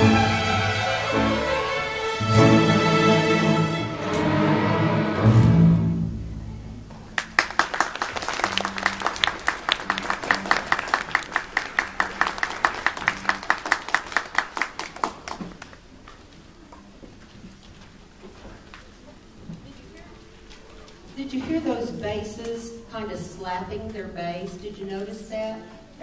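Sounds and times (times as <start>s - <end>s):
applause: 7.2s - 15.8s
close handclaps: 7.2s - 15.8s.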